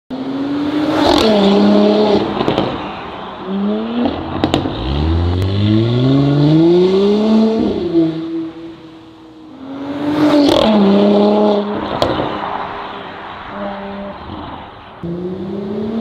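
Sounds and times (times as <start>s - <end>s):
car engine accelerating: 3.4s - 12.3s.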